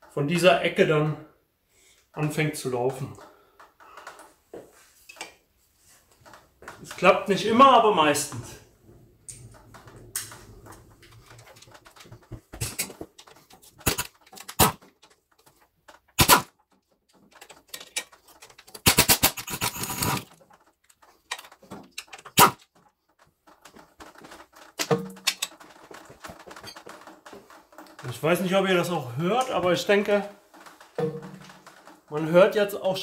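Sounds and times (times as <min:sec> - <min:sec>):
hand ratchet clicking: 0:17.2 - 0:22.8.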